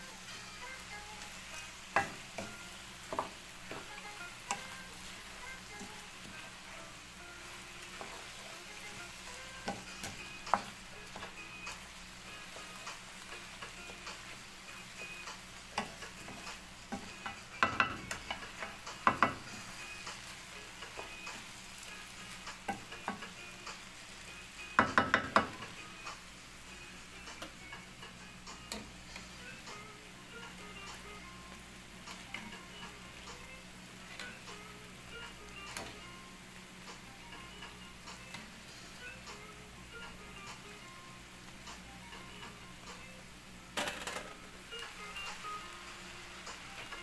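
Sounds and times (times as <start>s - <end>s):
food sizzling: 0.0s - 47.0s
wooden spatula stirring in a pan: 0.1s - 24.2s.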